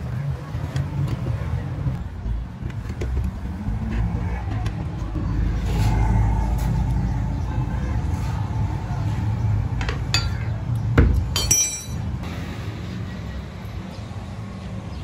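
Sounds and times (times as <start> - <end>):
ringing metallic clink: 10.1 - 10.5, 11.4 - 12.1.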